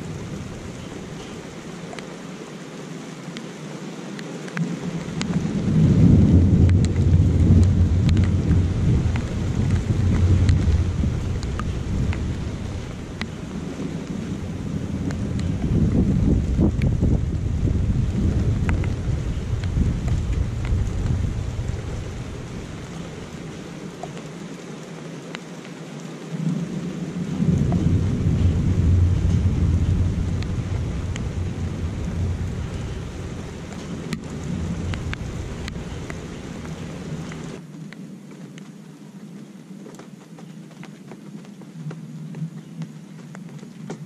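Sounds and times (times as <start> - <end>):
thunder rumbling: 0.0 - 1.9, 4.6 - 24.4, 26.3 - 37.6
steady rain: 0.0 - 44.0.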